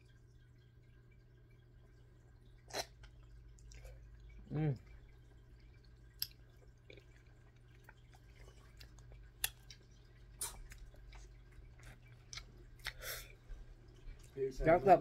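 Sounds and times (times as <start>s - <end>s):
wet chewing mouth clicks: 6.2s - 13.4s.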